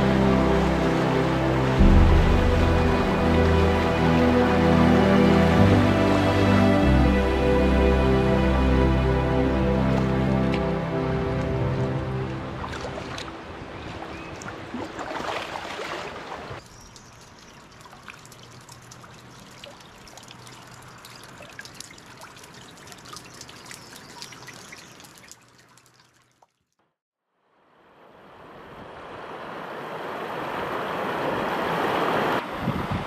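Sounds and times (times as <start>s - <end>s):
river rushing over riffles: 0.0s - 16.6s, 27.9s - 32.7s
water trickling: 0.0s - 26.7s
water drips splashing: 9.8s - 26.7s.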